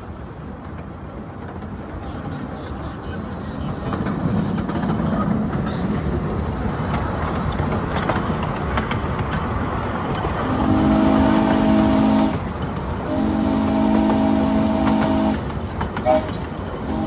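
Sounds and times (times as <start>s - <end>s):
train cars rumbling on track: 0.0s - 17.0s
train whistle chord: 10.5s - 12.4s, 13.1s - 15.4s, 16.0s - 17.0s.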